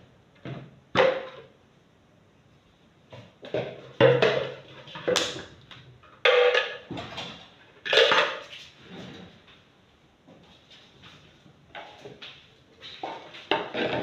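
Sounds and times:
kitchenware clattering on table: 0:06.2 - 0:09.1.

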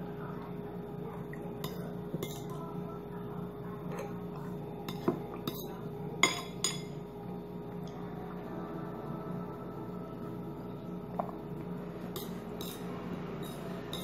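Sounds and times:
steady low hum: 0:00.0 - 0:14.0
spoon clinking on ceramic bowl: 0:06.2 - 0:07.0.

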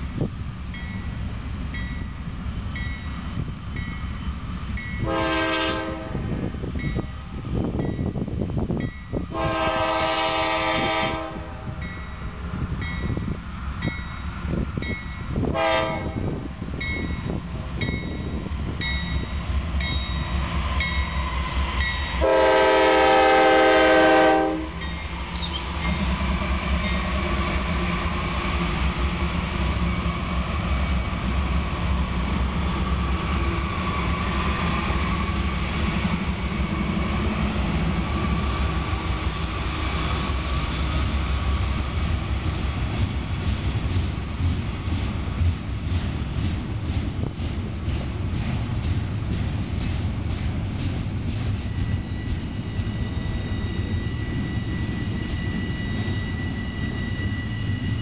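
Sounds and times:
freight train running by: 0:00.0 - 0:58.0
locomotive rumbling past: 0:00.0 - 0:58.0
locomotive bell ringing: 0:00.7 - 0:05.2, 0:11.8 - 0:15.5, 0:16.1 - 0:21.2, 0:21.8 - 0:22.4, 0:24.6 - 0:26.2, 0:26.8 - 0:27.3
locomotive air horn: 0:05.0 - 0:06.4, 0:09.3 - 0:11.8, 0:15.5 - 0:16.4, 0:22.2 - 0:24.8.

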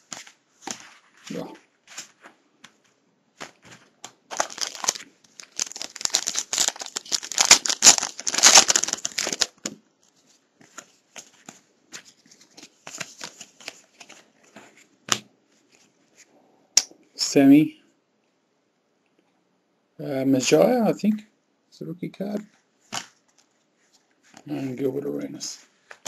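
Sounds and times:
cards clicking and rustling: 0:03.4 - 0:09.8, 0:10.6 - 0:15.2, 0:22.4 - 0:23.5
wrapper crinkling and rustling: 0:03.4 - 0:14.6.

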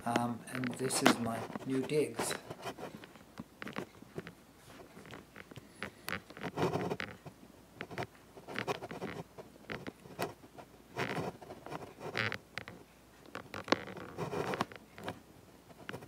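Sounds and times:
phone handling taps and rustles: 0:00.0 - 0:07.2.

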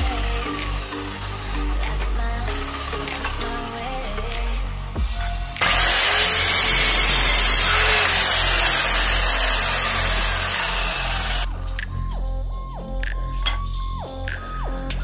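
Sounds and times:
miter saw cutting wood: 0:00.0 - 0:04.4, 0:05.6 - 0:11.5.

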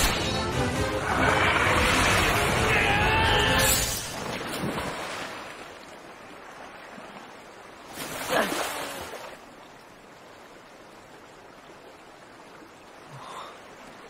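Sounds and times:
heavy water splashing: 0:00.0 - 0:09.6.

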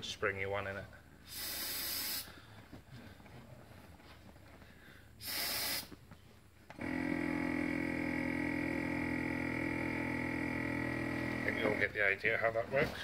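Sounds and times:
air compressor running: 0:01.2 - 0:02.5, 0:05.2 - 0:06.0, 0:06.7 - 0:12.1
seat cushion air hiss: 0:01.2 - 0:02.5, 0:05.2 - 0:06.0.

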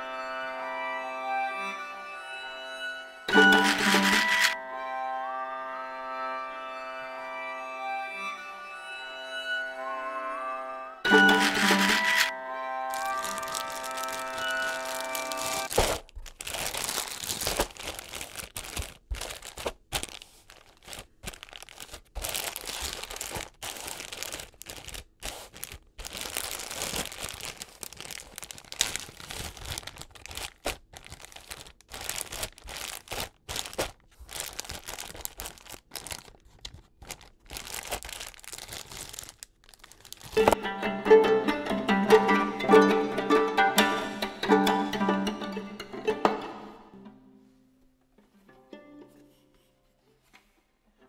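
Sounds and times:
music: 0:00.0 - 0:15.7, 0:40.4 - 0:50.1
plastic bag crinkling: 0:03.4 - 0:04.6, 0:11.2 - 0:12.3, 0:12.9 - 0:40.6
dried beans shifting: 0:03.5 - 0:04.6, 0:11.2 - 0:12.3, 0:12.9 - 0:40.6.

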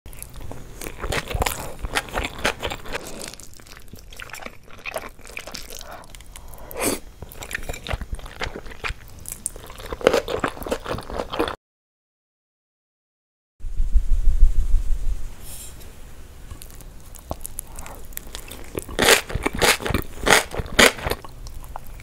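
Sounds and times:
person chewing food: 0:00.1 - 0:11.6, 0:16.5 - 0:22.0.

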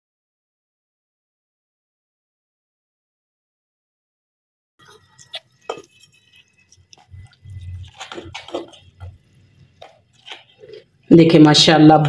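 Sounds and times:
wet squelches of chutney: 0:04.8 - 0:11.1.

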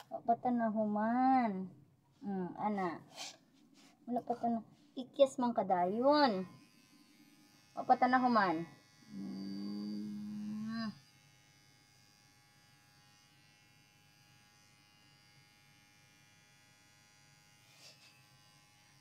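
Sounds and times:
electric pet clipper humming: 0:05.9 - 0:19.0.

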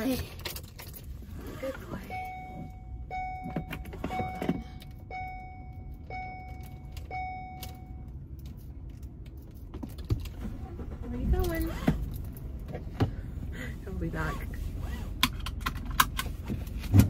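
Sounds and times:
low steady rumble: 0:00.0 - 0:17.0
vehicle warning chime: 0:01.7 - 0:08.3.

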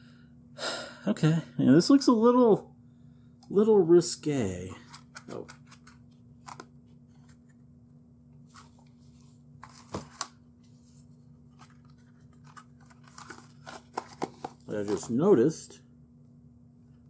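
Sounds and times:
faint steady hum: 0:00.0 - 0:17.0
plastic cases clicking and rustling: 0:11.6 - 0:15.2.

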